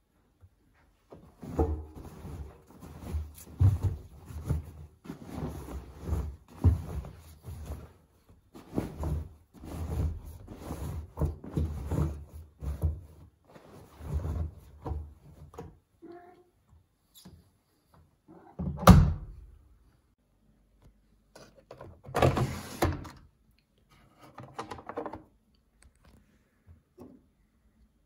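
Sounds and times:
soft thuds of clothes: 0.7 - 15.4
fabric rustling: 1.0 - 11.1.

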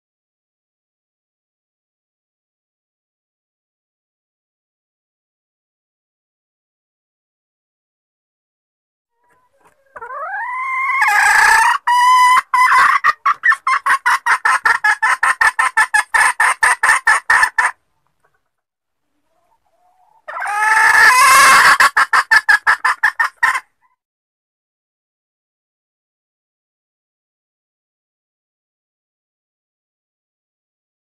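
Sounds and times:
jungle fowl hen calling: 9.2 - 18.4, 19.2 - 24.0.

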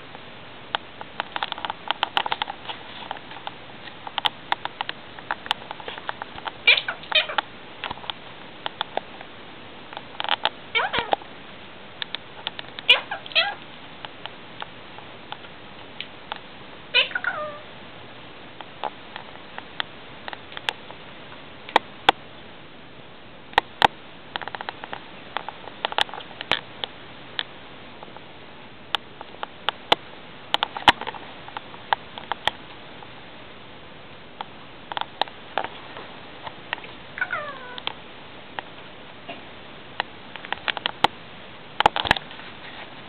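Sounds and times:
parakeet calls: 6.6 - 7.4, 10.8 - 11.2, 12.8 - 13.6, 16.9 - 17.7, 37.2 - 37.8.

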